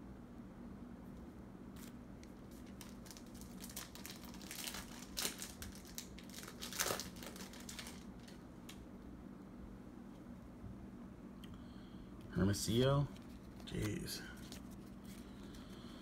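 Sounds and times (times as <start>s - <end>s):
wrapper crinkling: 1.8s - 8.4s
wrapper ripping: 1.8s - 8.4s.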